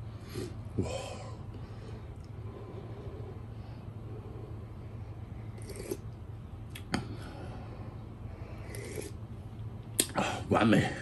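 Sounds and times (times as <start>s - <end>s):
slurping broth from a spoon: 5.5s - 6.1s, 8.6s - 9.2s.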